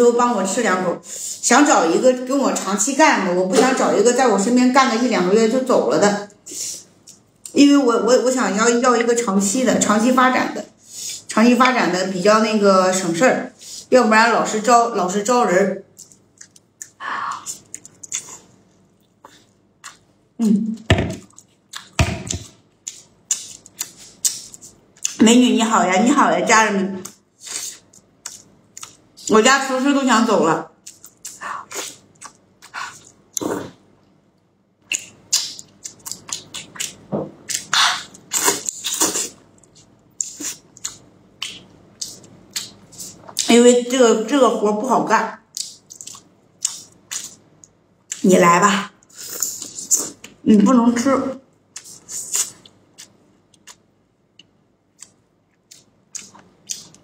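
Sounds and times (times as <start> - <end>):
chewing and lip-smacking: 15.9 - 20.1, 21.2 - 25.2, 27.0 - 29.3, 30.8 - 33.5, 34.8 - 43.5, 45.5 - 48.2, 51.7 - 57.0
loud thump: 20.9 - 21.2.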